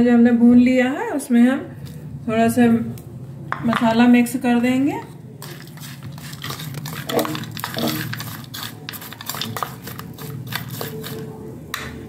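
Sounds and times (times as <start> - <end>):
metal spoon scraping ceramic bowl: 5.4 - 11.3.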